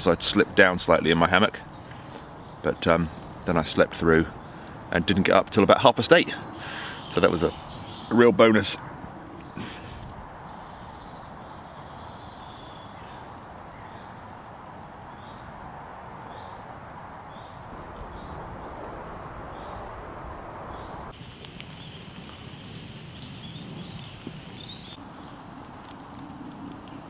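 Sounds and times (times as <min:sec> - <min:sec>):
birds chirping: 0:00.0 - 0:27.0
steady rushing background: 0:15.8 - 0:21.2.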